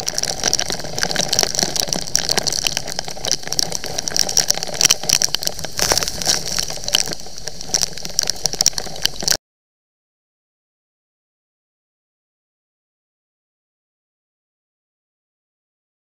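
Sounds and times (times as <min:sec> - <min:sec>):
heavy rain hitting a helmet: 0:00.0 - 0:09.4
wind noise: 0:00.0 - 0:09.4.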